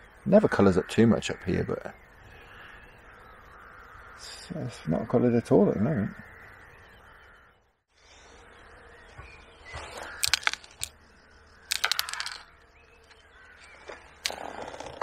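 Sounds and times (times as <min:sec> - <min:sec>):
fishing pole clicking and rattling: 0:10.2 - 0:11.0, 0:11.7 - 0:12.5, 0:14.2 - 0:15.0.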